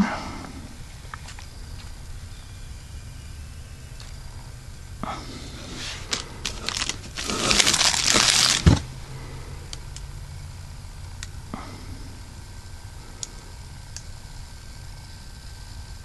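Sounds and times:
plastic wrapping crinkling: 5.7 - 8.9.

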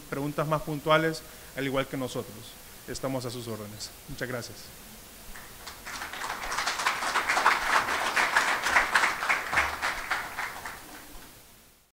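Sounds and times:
audience applause: 5.4 - 11.4.

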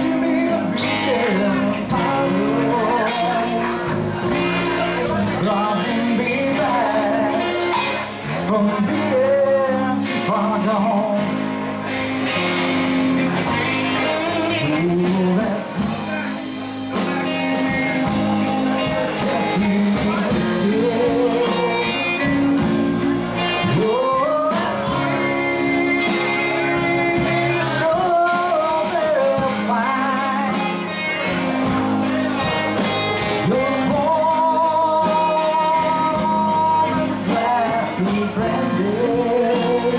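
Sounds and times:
bass guitar: 0.0 - 39.9
electric guitar: 0.0 - 39.9
man singing: 0.0 - 39.9
strummed acoustic guitar: 0.0 - 39.9.

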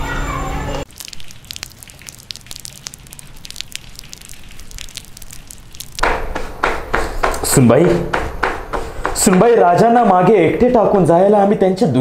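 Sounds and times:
dense noise: 0.8 - 11.1
faint crackling and clicking: 0.9 - 6.1.

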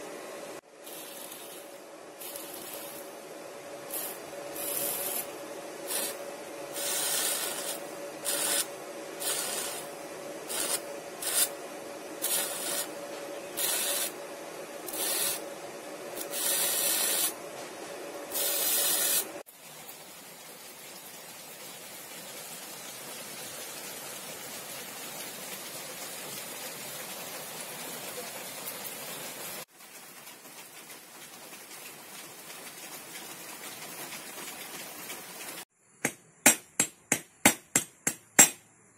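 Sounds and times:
steady hum: 0.0 - 19.5.

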